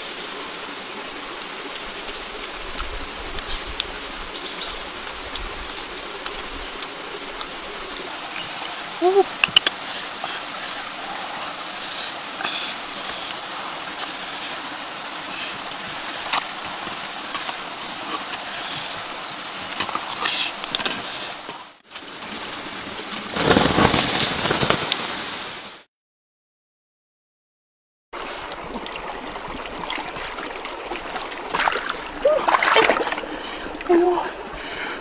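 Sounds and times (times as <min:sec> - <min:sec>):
running water rushing: 0:00.0 - 0:25.9, 0:28.2 - 0:35.0.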